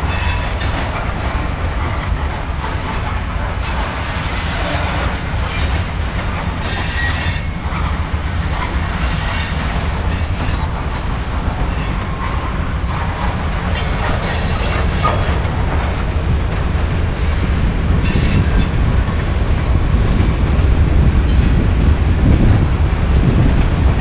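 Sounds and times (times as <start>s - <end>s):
train wheels rumbling on rail: 0.0s - 24.0s
high-pitched wheel squeals: 6.0s - 7.5s, 14.2s - 15.2s, 18.0s - 18.8s, 21.3s - 21.7s.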